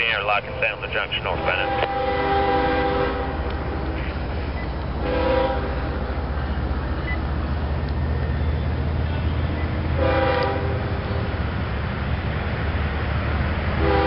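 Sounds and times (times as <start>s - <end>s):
low steady train rumble: 0.0s - 14.0s
locomotive air horn blasts: 1.3s - 3.5s, 5.0s - 6.0s, 9.1s - 10.8s, 13.8s - 14.0s.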